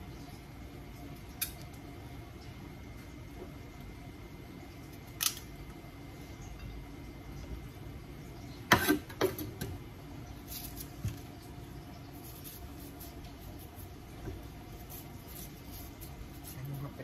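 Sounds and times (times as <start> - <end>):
knife scraping squash: 12.1 - 14.0, 14.8 - 17.0.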